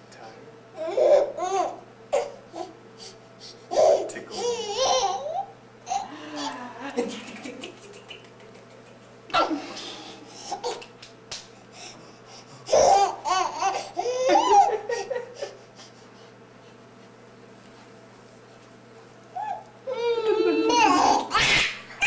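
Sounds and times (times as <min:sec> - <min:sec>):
baby laughing: 0:03.7 - 0:06.5, 0:12.7 - 0:15.6, 0:19.4 - 0:21.7.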